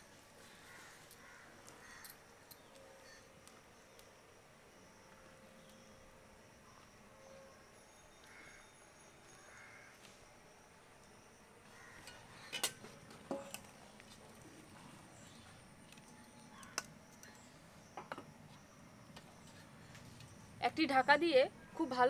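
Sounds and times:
utensil clinking against pot: 0:12.1 - 0:13.6.

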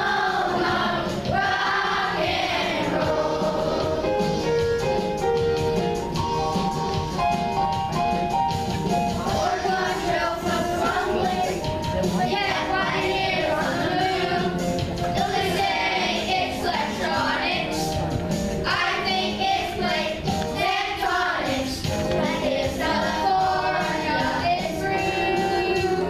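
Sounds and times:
children's chorus singing: 0:00.0 - 0:04.4, 0:09.1 - 0:17.9, 0:18.6 - 0:26.0
instrumental accompaniment: 0:00.0 - 0:26.0.

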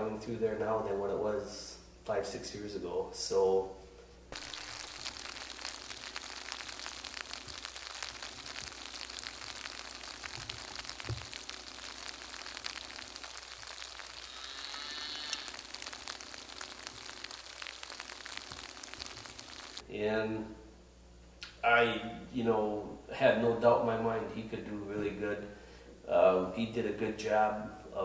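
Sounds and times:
crackling hiss with clicks: 0:04.3 - 0:19.9.

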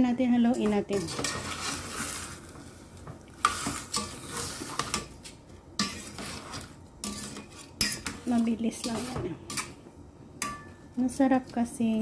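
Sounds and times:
spoon scraping in a pot: 0:00.4 - 0:09.8.

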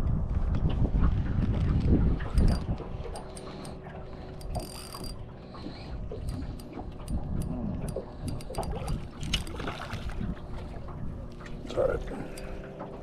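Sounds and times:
fishing reel clicking: 0:02.3 - 0:09.6.

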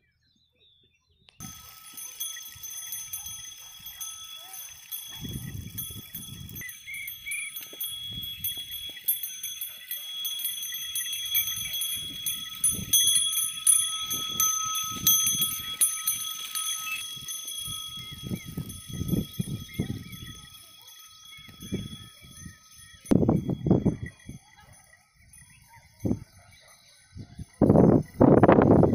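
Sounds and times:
hooves and footsteps thudding: 0:07.5 - 0:10.2.

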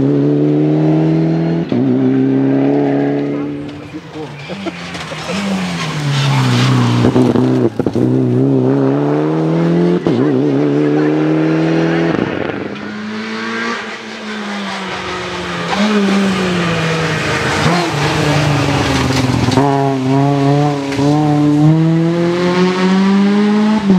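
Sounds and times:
rally car engines revving hard: 0:00.0 - 0:23.9.

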